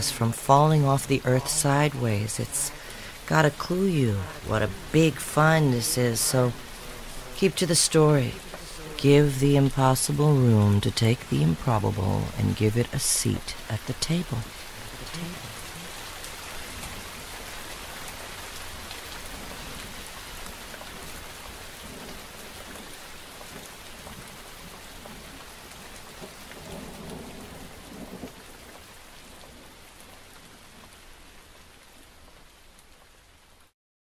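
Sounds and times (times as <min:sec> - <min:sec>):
steady rain: 0:00.0 - 0:33.8
low rumble of thunder: 0:18.7 - 0:29.9.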